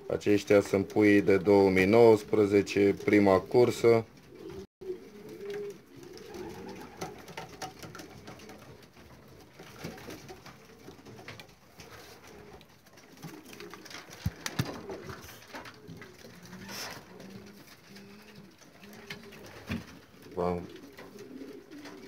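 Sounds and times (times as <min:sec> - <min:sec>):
pigeons cooing: 0:00.0 - 0:22.0.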